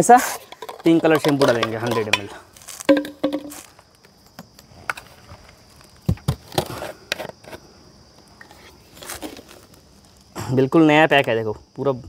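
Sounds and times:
plastic containers knocking: 0.4 - 3.7
low thumps: 2.9 - 3.6.

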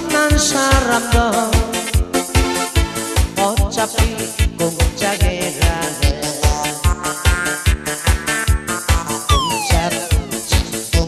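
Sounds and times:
instrumental dance music: 9.3 - 10.7.

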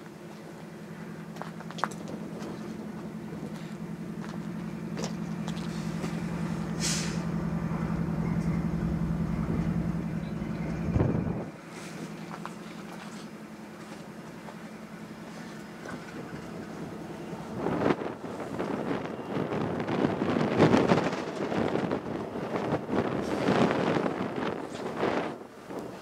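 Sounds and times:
engine drone: 0.0 - 26.0
short hiss of air: 6.8 - 7.4.

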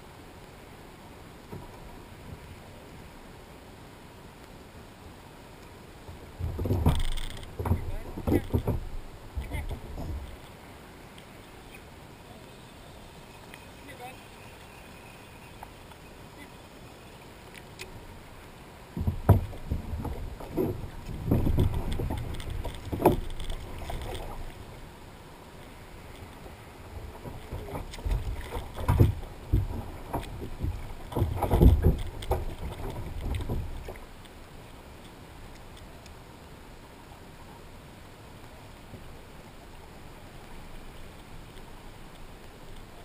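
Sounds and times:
water splashing: 5.8 - 36.2
thumps against plastic kayak hull: 6.4 - 10.3, 19.0 - 23.6, 27.2 - 34.0.

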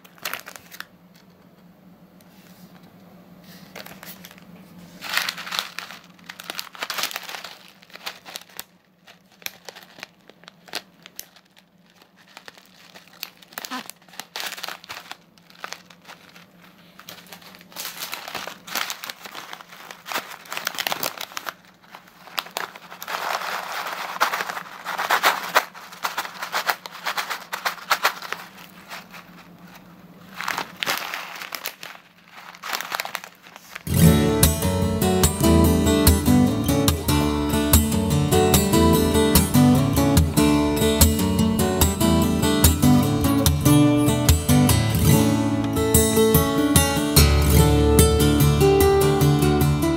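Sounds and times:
plastic snack packets crinkling: 0.0 - 1.4, 3.5 - 49.9
acoustic guitar music: 33.9 - 49.9.

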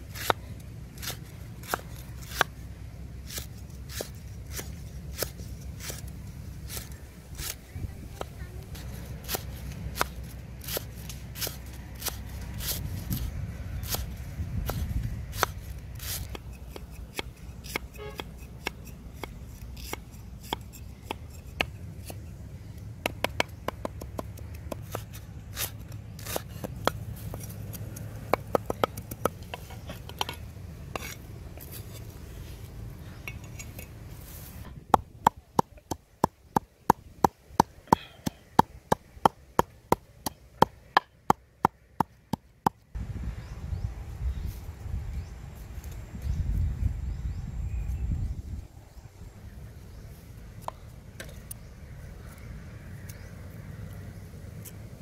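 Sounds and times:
cleaver chopping on wooden block: 23.0 - 25.0, 28.3 - 30.4.

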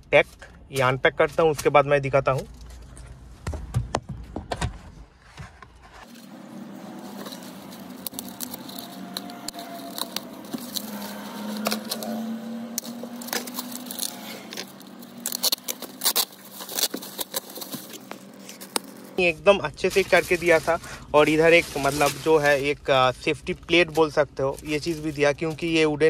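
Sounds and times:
plastic wrap crinkling: 6.0 - 22.9.

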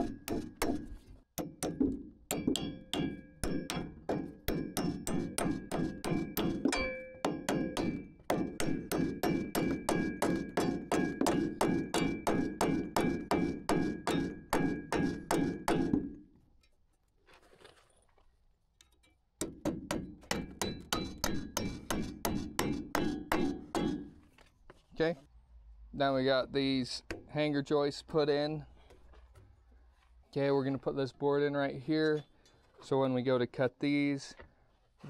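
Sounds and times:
hammer driving nails: 0.0 - 16.2, 19.4 - 24.1.

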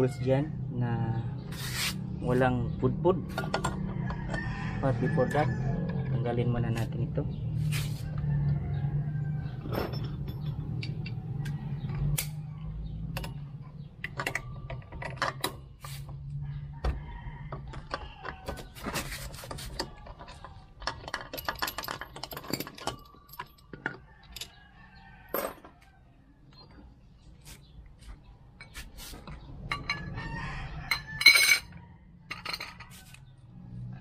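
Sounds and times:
wrench and metal parts clinking: 9.6 - 11.2, 19.0 - 24.6, 29.7 - 30.2, 30.9 - 33.2.

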